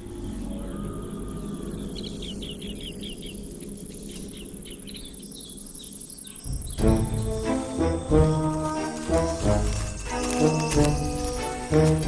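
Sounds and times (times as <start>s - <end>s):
bush-cricket chirping: 0.0s - 12.0s
orchestral music with brass: 6.8s - 12.0s.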